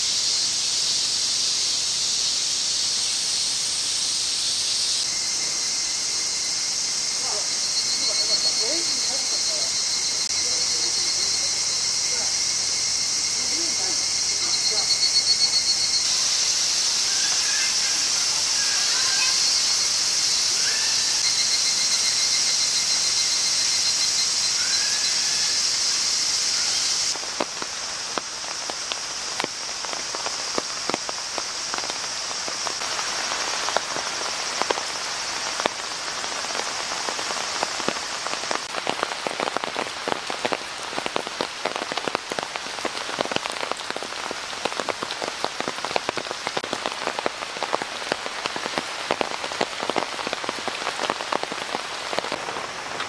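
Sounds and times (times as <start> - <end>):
cicadas droning: 0.0 - 53.0
rain pattering on leaves: 0.0 - 53.0.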